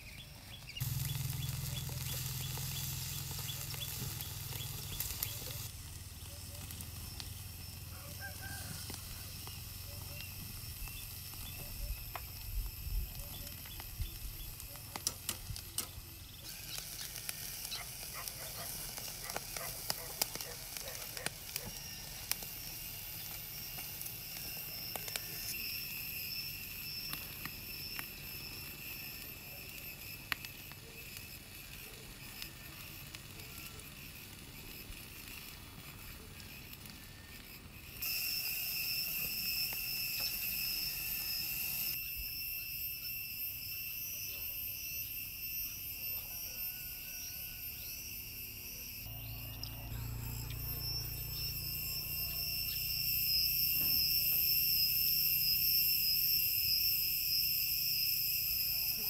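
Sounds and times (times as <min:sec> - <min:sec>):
insects trilling: 0:00.0 - 0:59.0
small clicks and crackles: 0:00.6 - 0:25.6.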